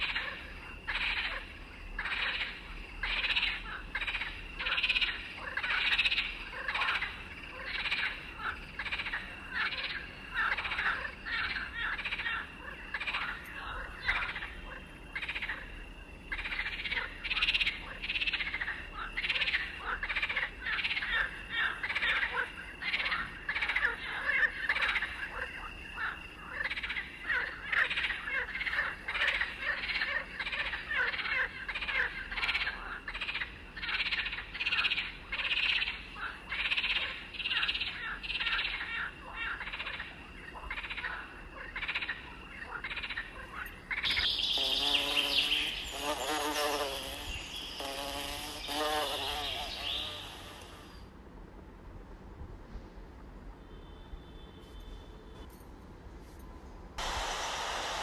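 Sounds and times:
chorus of animal calls: 0:00.0 - 0:45.7.

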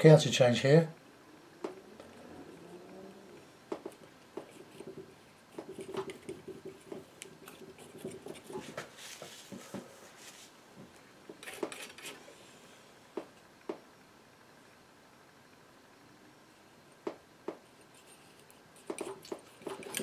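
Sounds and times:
painting knife scraping paint: 0:04.4 - 0:09.5, 0:11.4 - 0:12.2, 0:17.7 - 0:20.0.

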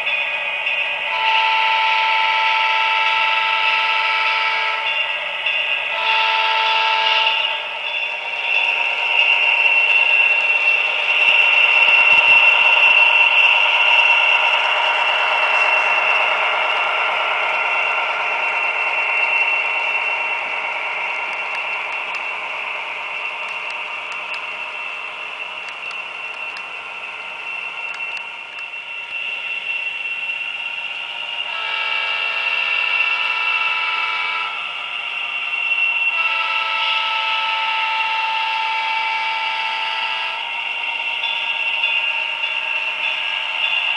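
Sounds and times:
locomotive horn blasts: 0:01.1 - 0:04.9, 0:05.9 - 0:07.6, 0:31.5 - 0:34.6, 0:36.1 - 0:40.4.

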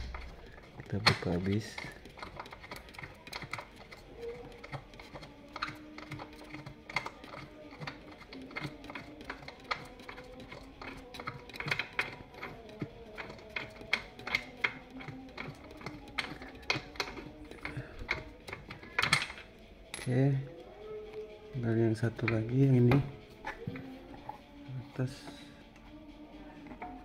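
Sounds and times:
metallic bolt clicks and ticks: 0:00.0 - 0:20.1.

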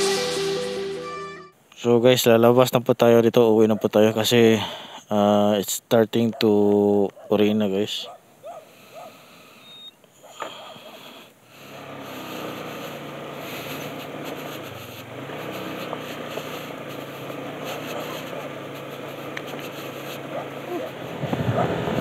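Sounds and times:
small vehicle engine running: 0:11.5 - 0:22.0.

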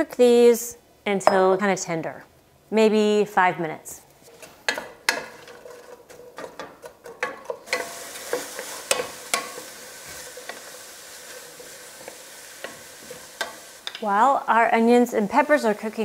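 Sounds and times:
wooden spoon tapping a pan: 0:04.7 - 0:05.6, 0:06.4 - 0:10.7, 0:12.0 - 0:14.1
vegetables sizzling in oil: 0:07.2 - 0:16.0.

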